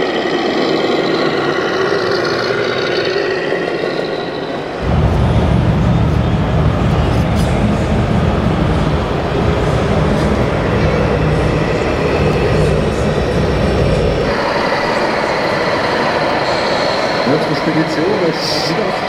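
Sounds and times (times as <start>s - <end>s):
hall background noise: 0.0s - 19.0s
diesel engine rumble from speaker: 4.8s - 19.0s.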